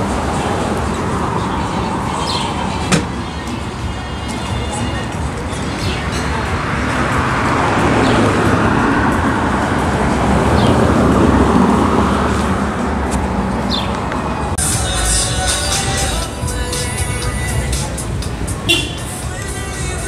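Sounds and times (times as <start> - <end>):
street traffic: 0.0 - 20.0
vehicle passing close: 6.2 - 14.6.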